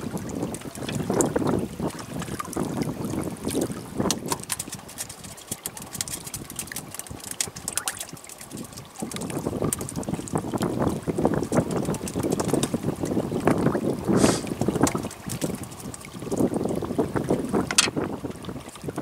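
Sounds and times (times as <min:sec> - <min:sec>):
water lapping against boat hull: 0:00.0 - 0:19.0
wind buffeting microphone: 0:00.0 - 0:19.0.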